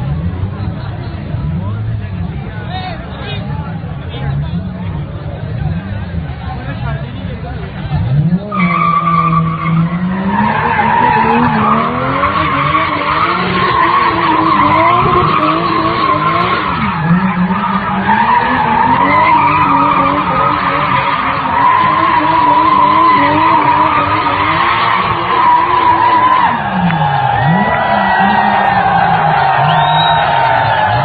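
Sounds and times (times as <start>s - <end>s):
car engine revving: 3.6s - 31.0s
tyres squealing: 8.5s - 31.0s.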